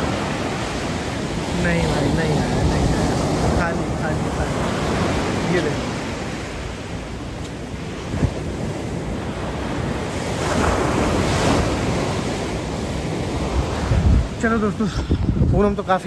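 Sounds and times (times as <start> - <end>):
sea surf washing onto beach: 0.0 - 16.0
wind buffeting microphone: 0.0 - 16.0.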